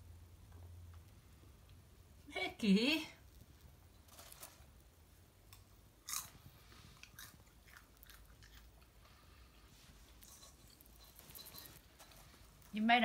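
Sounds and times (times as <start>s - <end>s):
bird crunching popcorn: 3.3s - 4.9s, 5.5s - 9.2s.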